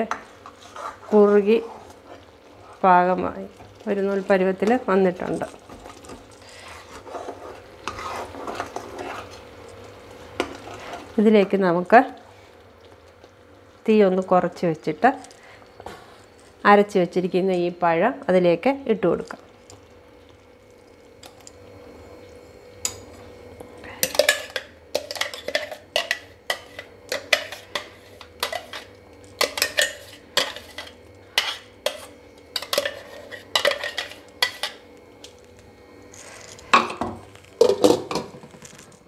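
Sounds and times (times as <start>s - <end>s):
spatula scraping metal jar: 24.1s - 34.8s.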